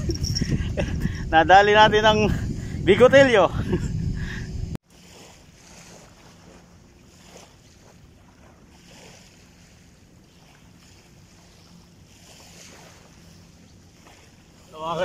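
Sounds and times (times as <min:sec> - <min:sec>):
small waves washing on sand: 0:04.8 - 0:15.0.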